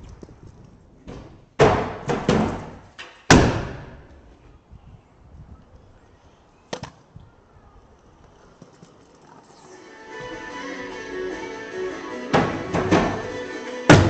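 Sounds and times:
scooter clattering on concrete: 7.8 - 9.7.

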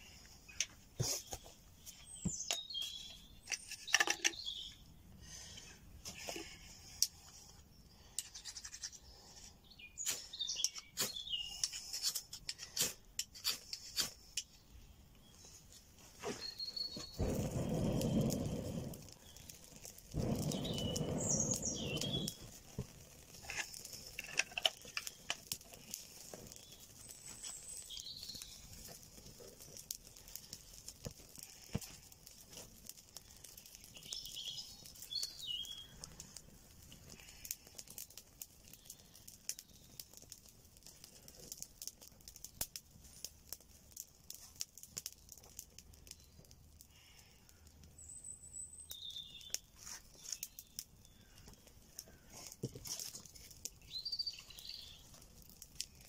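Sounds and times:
twigs crackling and popping: 0.0 - 56.0
bird chirps: 0.5 - 4.9, 9.6 - 11.7, 16.3 - 19.6, 20.2 - 22.5, 26.6 - 28.7, 33.9 - 36.0, 48.0 - 52.3, 53.8 - 55.1
person blowing into fire: 4.6 - 14.4, 16.1 - 39.9.

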